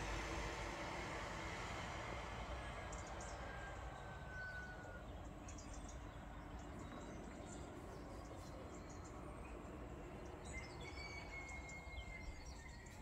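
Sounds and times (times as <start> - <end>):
thin bird-like whistle: 10.4 - 13.0.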